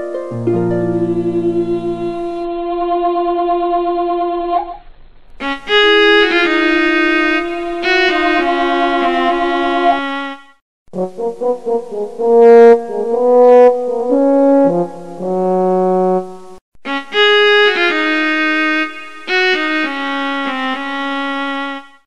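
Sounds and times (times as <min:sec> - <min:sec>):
slow held music chords: 0:00.0 - 0:04.4, 0:05.4 - 0:10.2.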